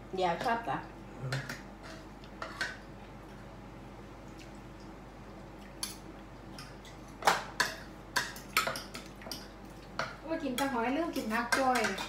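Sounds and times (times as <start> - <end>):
shells and cutlery clicking on plates: 6.6 - 12.0.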